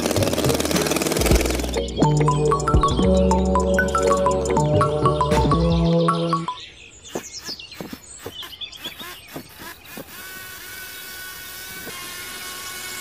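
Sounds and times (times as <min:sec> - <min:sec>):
small electric motor whining: 0:07.1 - 0:13.0.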